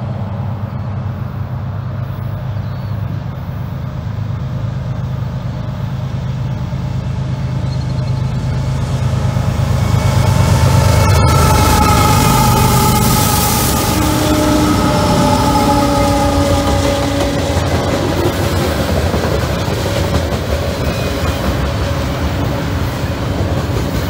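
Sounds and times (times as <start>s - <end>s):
diesel locomotive engine drone: 0.0s - 24.0s.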